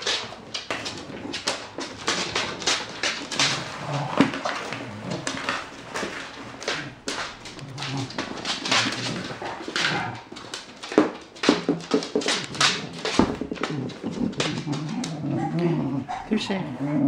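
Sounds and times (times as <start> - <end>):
toys and paws knocking on wooden floor: 0.0 - 16.6
dog making playful noises: 13.4 - 16.4.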